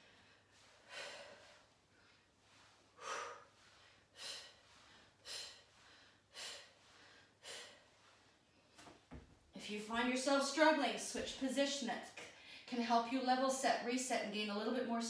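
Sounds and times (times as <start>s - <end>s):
woman breathing with effort: 0.0s - 8.8s.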